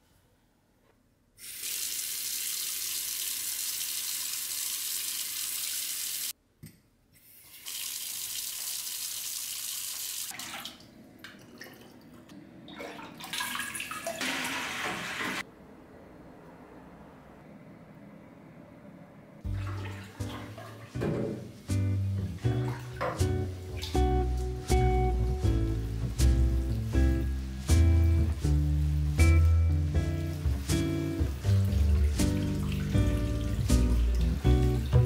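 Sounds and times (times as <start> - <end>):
faucet running: 1.4 - 6.3, 7.4 - 10.8, 13.0 - 15.4, 29.0 - 35.0
water pouring into metal watering can: 12.7 - 15.4.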